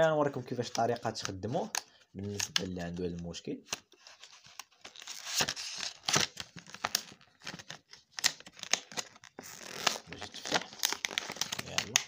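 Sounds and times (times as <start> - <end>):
plastic packaging crackling: 3.8 - 12.0.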